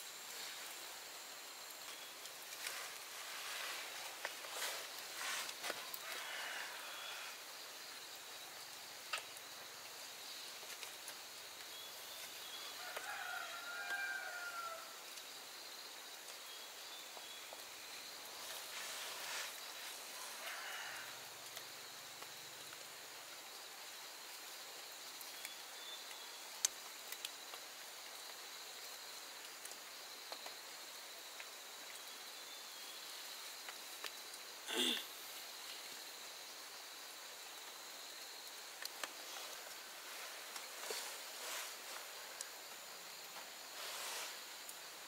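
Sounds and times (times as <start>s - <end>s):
faint high hiss: 0.0s - 45.0s.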